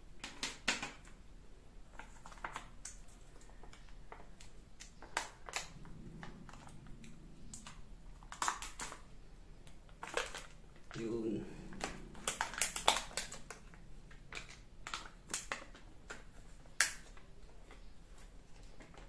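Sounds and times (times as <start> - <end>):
plastic sachet crinkling and tearing: 7.6 - 9.1, 9.9 - 11.0, 11.9 - 17.2.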